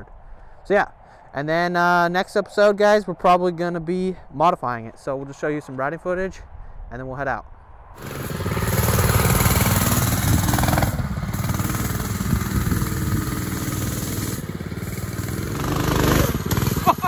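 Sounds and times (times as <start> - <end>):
minibike engine running hard: 8.0 - 17.0.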